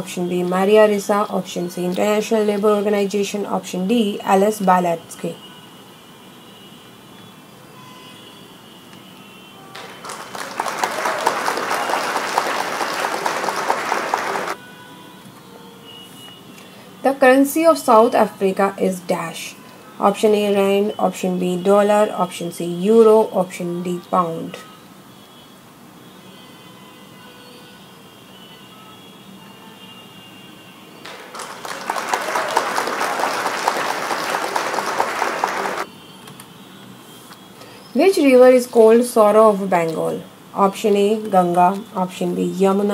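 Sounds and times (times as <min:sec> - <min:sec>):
applause sound effect: 0:09.7 - 0:14.6, 0:31.0 - 0:35.9
crowd clapping: 0:09.7 - 0:14.6, 0:31.0 - 0:35.9.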